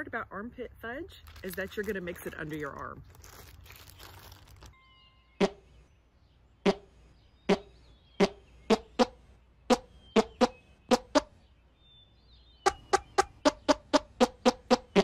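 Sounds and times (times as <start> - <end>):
plastic zip bag crinkling: 1.2 - 4.8.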